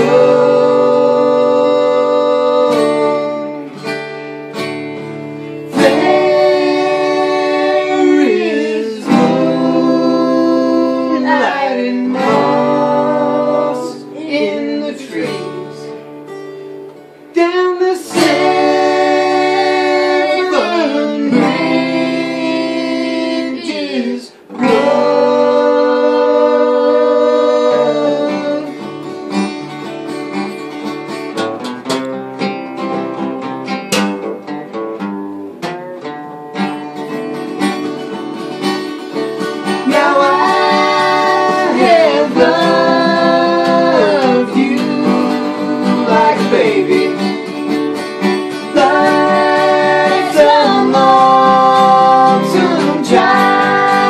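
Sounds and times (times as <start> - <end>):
voices singing in harmony: 0.0 - 3.8, 5.7 - 16.0, 17.4 - 28.9, 39.0 - 54.0
acoustic guitars playing: 0.0 - 54.0.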